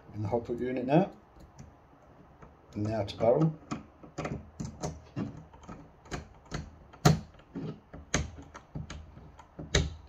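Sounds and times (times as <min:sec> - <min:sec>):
screwdriver clicks and taps: 0:03.7 - 0:10.0.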